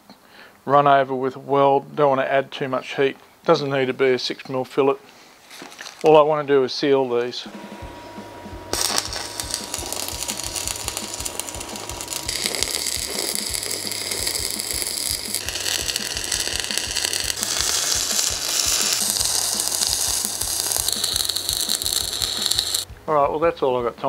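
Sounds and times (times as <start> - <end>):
welding arc crackling: 8.7 - 22.9.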